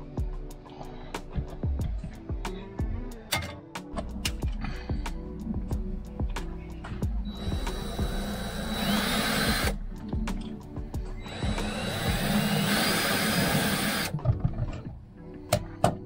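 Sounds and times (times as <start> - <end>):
background music: 0.0 - 16.0
power drill cutting wood: 7.3 - 9.8, 11.2 - 14.2.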